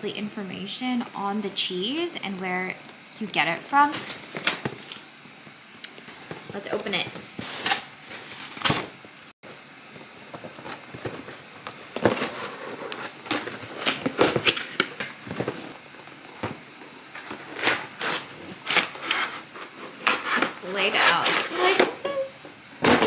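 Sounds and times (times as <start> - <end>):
cardboard box scraping and rustling: 10.5 - 14.6.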